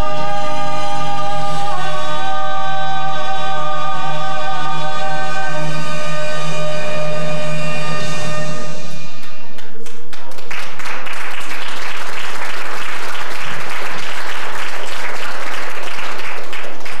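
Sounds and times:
audience applause: 9.6 - 17.0.

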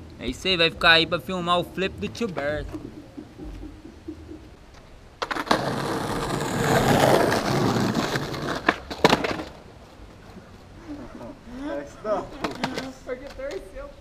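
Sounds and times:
skateboard wheels rolling on concrete: 0.0 - 14.0
skateboard clacking on pavement: 2.4 - 10.4, 12.3 - 13.8.

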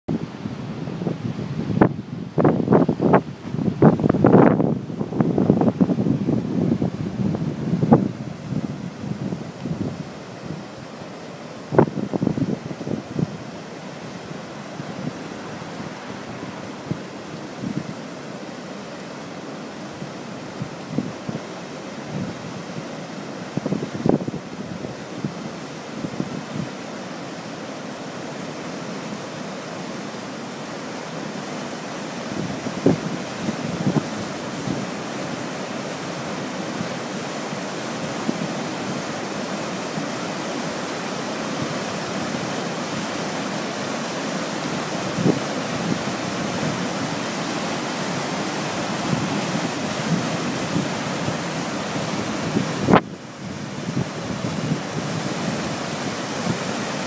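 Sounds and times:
wind thumps on microphone: 0.1 - 10.6, 11.7 - 13.5, 23.6 - 25.4, 32.4 - 34.9, 48.6 - 56.7
river rushing over a weir: 0.1 - 57.0.

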